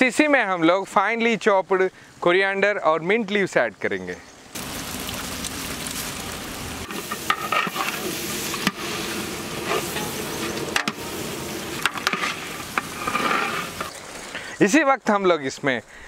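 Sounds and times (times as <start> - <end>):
masala sizzling in a pot: 4.5 - 14.5
ladle scraping a metal pot: 6.8 - 14.0.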